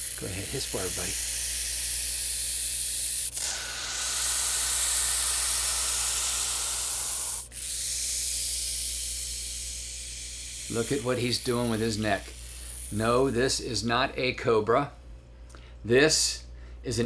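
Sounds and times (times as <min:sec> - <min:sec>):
snake hissing: 0:00.0 - 0:13.4.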